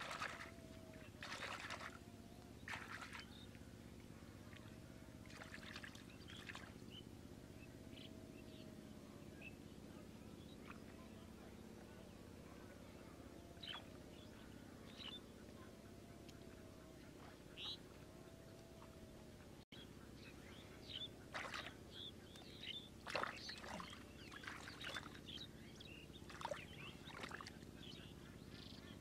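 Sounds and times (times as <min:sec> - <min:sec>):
hand splashing muddy water: 0:00.0 - 0:00.5, 0:01.2 - 0:02.0, 0:02.7 - 0:03.3, 0:21.3 - 0:21.7, 0:23.1 - 0:25.1
faint low steady hum: 0:00.0 - 0:29.0.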